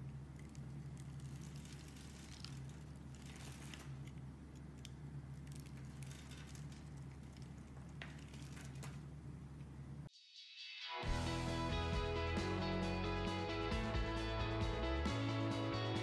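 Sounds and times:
soap cubes crackling: 0.3 - 9.0.

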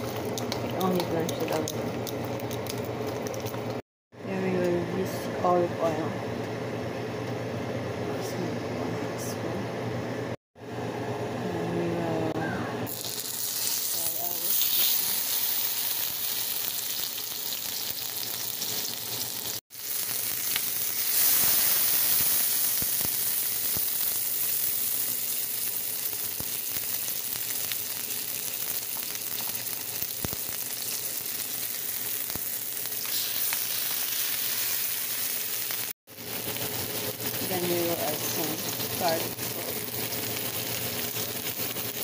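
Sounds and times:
chicken wings sizzling in oil: 12.9 - 42.0.

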